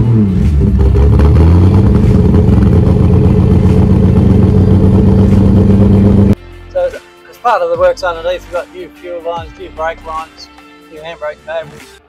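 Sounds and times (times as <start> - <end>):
loud engine exhaust: 0.0 - 6.4.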